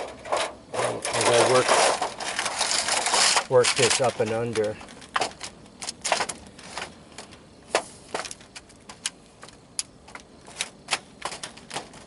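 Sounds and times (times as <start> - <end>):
metal sheet crackling and popping: 0.0 - 9.2.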